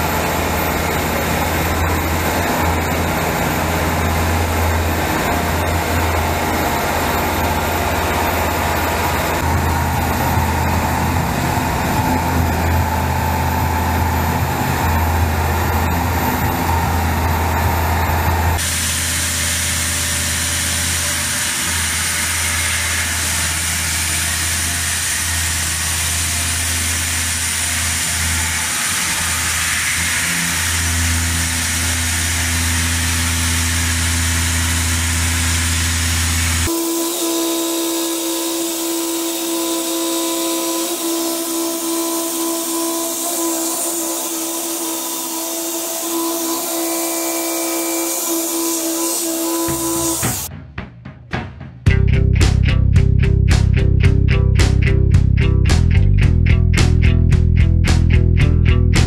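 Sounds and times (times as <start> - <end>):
milling machine hum and whine: 0.0 - 50.5
hiss of cutting metal: 18.6 - 50.5.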